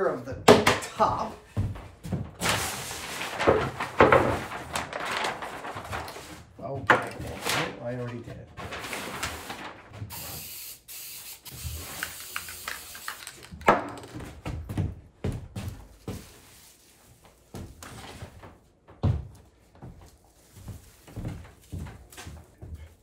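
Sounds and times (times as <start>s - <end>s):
aerosol can hissing: 10.1s - 13.4s.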